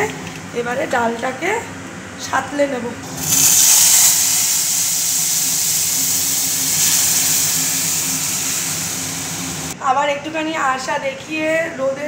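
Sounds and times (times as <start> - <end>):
food sizzling in hot oil: 3.1 - 9.8.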